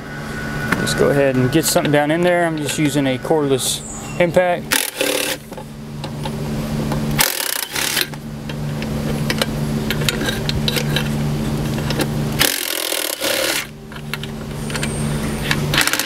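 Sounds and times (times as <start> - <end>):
cordless impact driver humming: 12.4 - 13.7.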